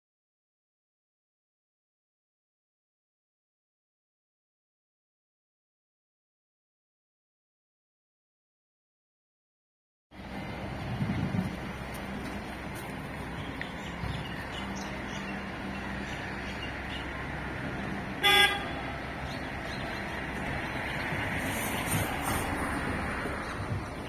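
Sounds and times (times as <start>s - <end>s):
street ambience: 10.1s - 24.0s
vehicle horn toot: 18.2s - 18.9s.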